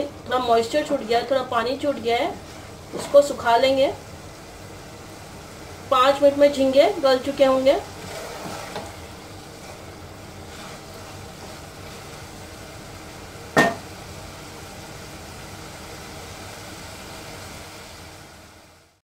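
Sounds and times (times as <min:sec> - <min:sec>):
curry sizzling in pot: 0:00.0 - 0:19.0
spatula knocking on metal pot rim: 0:13.6 - 0:13.8.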